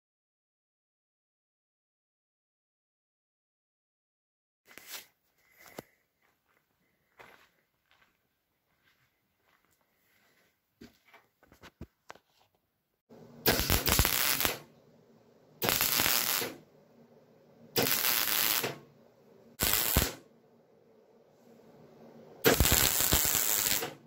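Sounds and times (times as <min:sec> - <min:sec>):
welder crackling: 0:13.1 - 0:14.8, 0:15.6 - 0:16.7, 0:17.6 - 0:20.3, 0:21.7 - 0:24.0.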